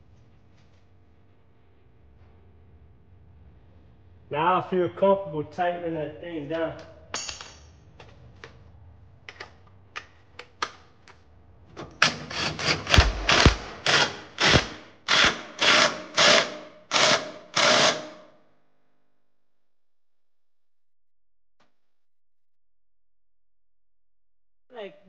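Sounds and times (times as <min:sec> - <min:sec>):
hand ratchet clicking: 0:12.0 - 0:18.1.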